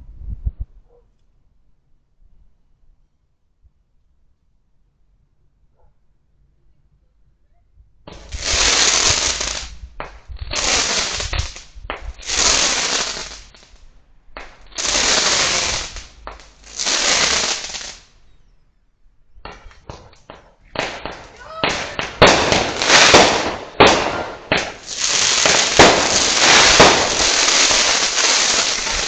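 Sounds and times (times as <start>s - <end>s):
fireworks crackling pops: 8.1s - 18.2s, 19.4s - 29.0s
fireworks hissing: 8.1s - 18.2s, 19.5s - 29.0s.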